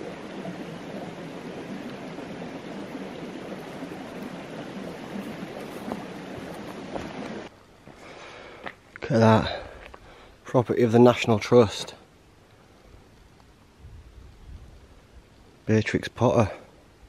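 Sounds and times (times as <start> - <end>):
stream babbling: 0.0 - 7.9
faint footsteps on grass: 3.4 - 10.2.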